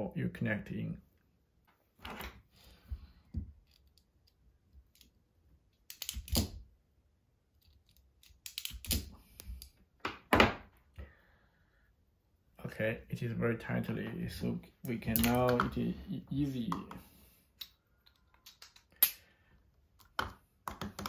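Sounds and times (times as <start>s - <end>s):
pliers twisting wire: 5.8s - 6.6s, 7.6s - 9.7s.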